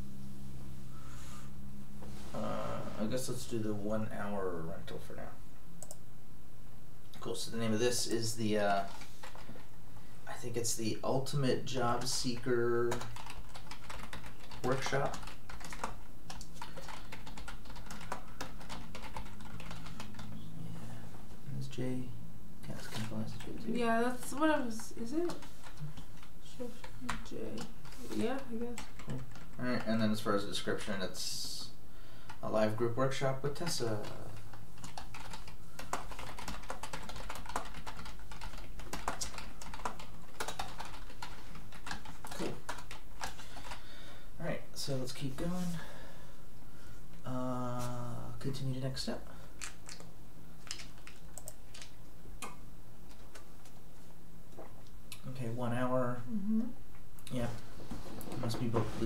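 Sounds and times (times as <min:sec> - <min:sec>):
low steady hum: 0:00.0 - 0:59.0
keyboard typing: 0:05.8 - 0:06.0, 0:11.9 - 0:20.9, 0:22.7 - 0:30.0, 0:33.6 - 0:43.8, 0:49.6 - 0:53.8.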